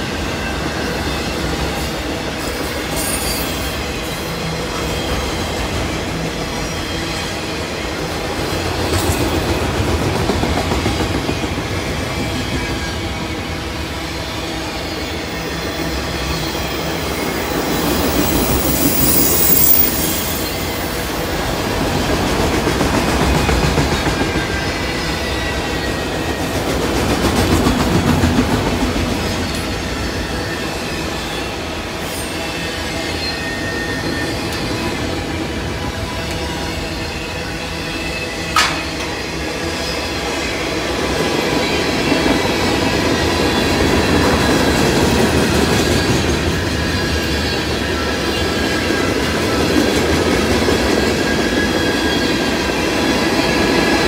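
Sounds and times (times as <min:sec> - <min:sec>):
steel wheels rumbling on rails: 0:00.0 - 0:54.0
faint high wheel squeal: 0:02.7 - 0:05.6, 0:14.0 - 0:21.3, 0:29.3 - 0:38.6.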